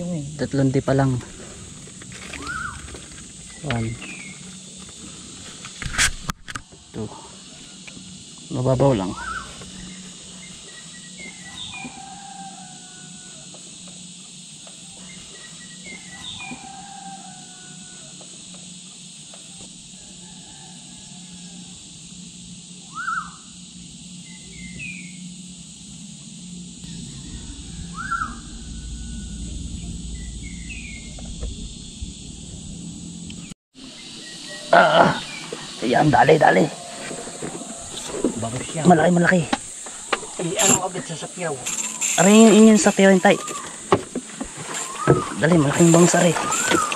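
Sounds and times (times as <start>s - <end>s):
insects droning: 0.0s - 46.9s
birds chirping: 0.4s - 5.1s, 8.9s - 12.3s, 26.9s - 46.9s
swooping bird calls: 2.2s - 4.7s, 9.0s - 13.3s, 22.9s - 23.5s, 33.8s - 46.9s.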